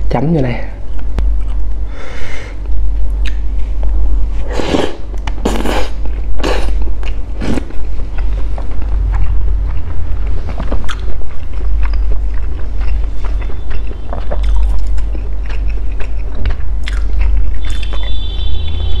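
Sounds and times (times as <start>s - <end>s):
steady low hum: 0.0s - 19.0s
soft chewing with wet clicks: 0.9s - 1.7s, 8.1s - 18.2s.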